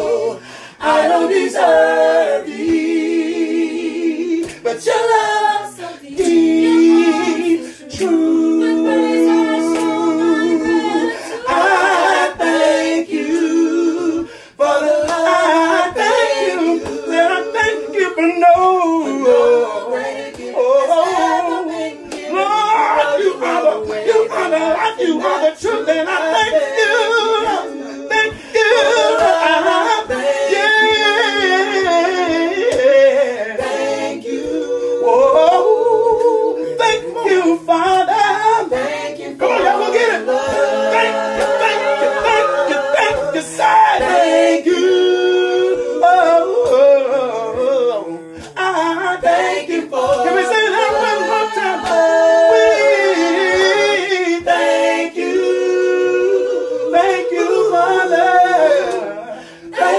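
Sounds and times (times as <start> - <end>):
choir singing gospel in harmony: 0.0 - 59.9.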